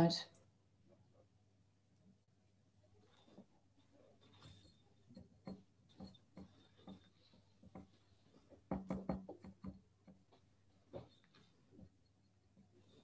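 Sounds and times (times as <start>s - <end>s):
faint irregular clicks and knocks: 0.3s - 13.0s.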